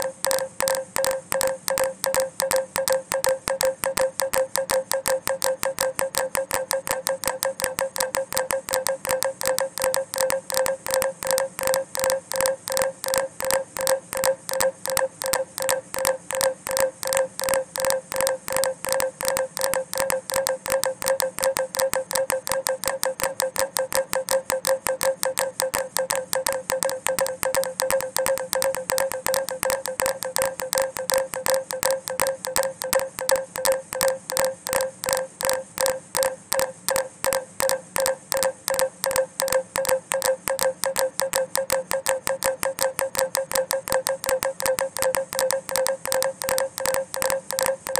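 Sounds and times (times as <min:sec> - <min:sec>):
pulsing electronic tone: 0:00.0 - 0:47.9.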